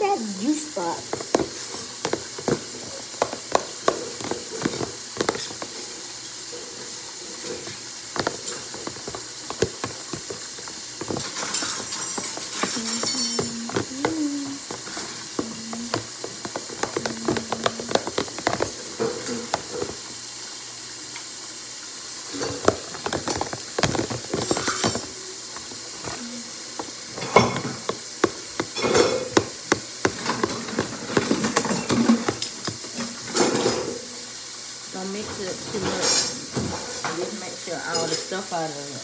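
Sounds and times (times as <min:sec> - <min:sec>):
spoon stirring thick batter: 0:00.8 - 0:06.2, 0:06.8 - 0:20.2, 0:22.3 - 0:32.9
spoon scraping plastic tub: 0:00.8 - 0:20.1, 0:22.3 - 0:33.9.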